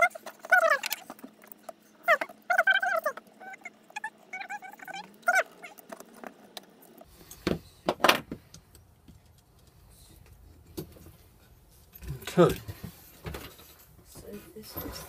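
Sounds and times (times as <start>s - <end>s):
dog whining: 0.0s - 6.2s.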